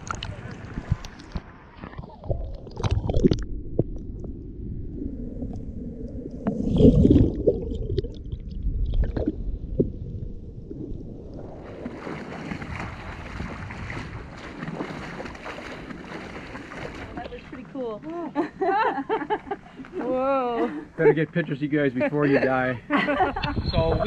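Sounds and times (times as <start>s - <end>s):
underwater rumble and gurgling: 0.0s - 17.6s
wind: 0.0s - 24.0s
surf: 11.3s - 24.0s.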